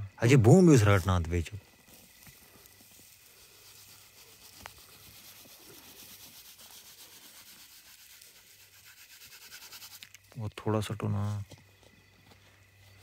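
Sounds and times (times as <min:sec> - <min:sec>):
dry straw pouring and rustling: 0:01.8 - 0:10.3.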